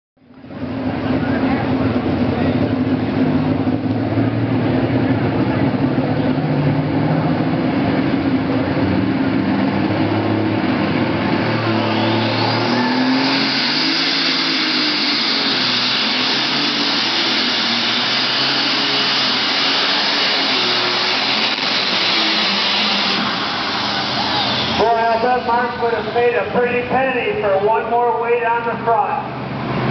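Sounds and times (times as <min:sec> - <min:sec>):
short rising whine: 0:00.4 - 0:27.4
loud hissing rush: 0:10.8 - 0:27.0.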